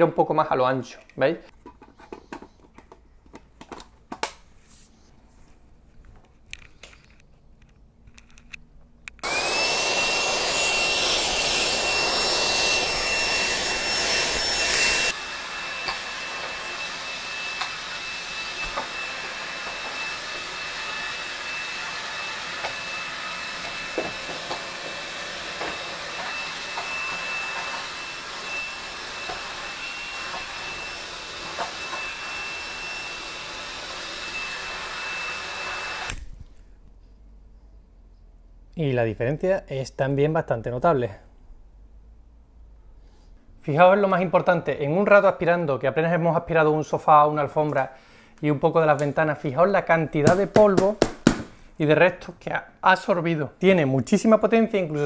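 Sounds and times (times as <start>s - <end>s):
stick vacuum motor whining: 9.1s - 36.6s.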